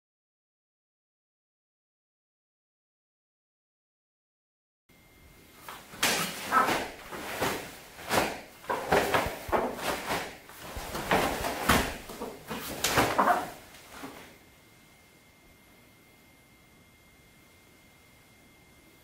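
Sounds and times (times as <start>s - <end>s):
uniform fabric snapping: 5.7s - 14.2s
bare feet landing on mat: 5.7s - 14.3s.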